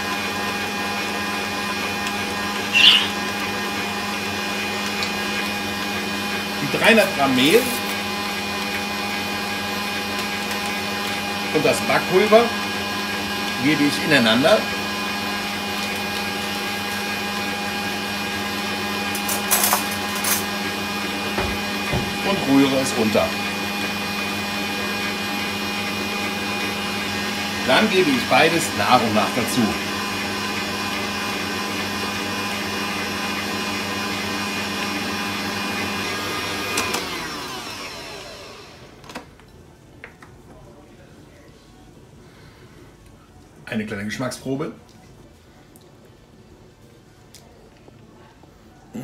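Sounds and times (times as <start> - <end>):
stand mixer motor hum: 0.0 - 39.0
short scratchy sounds: 2.7 - 3.2.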